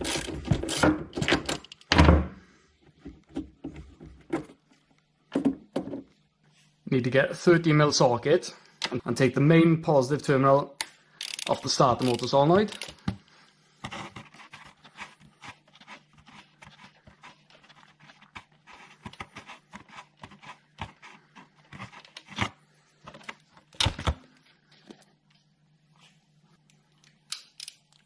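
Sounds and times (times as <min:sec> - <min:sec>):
ratchet clicking: 0:11.2 - 0:13.0.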